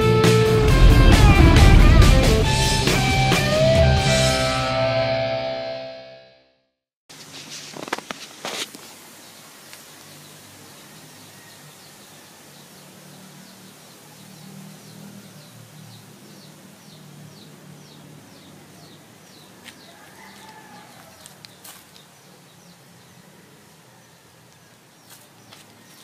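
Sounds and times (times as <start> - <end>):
low hum: 0.4 - 4.9.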